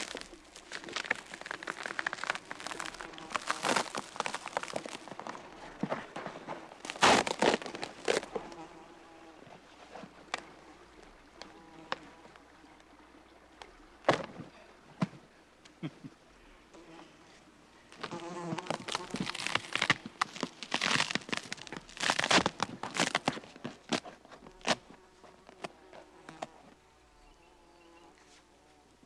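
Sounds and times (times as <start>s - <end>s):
insect buzzing: 0.0s - 5.6s, 6.6s - 12.6s, 17.9s - 20.5s, 21.2s - 28.8s
bark crackling and rustling: 0.0s - 8.8s.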